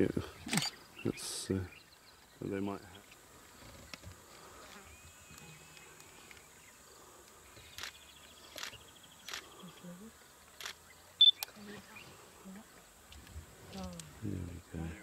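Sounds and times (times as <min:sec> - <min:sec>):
insect chirring: 0:01.7 - 0:14.8
sharp clicks: 0:07.2 - 0:09.5.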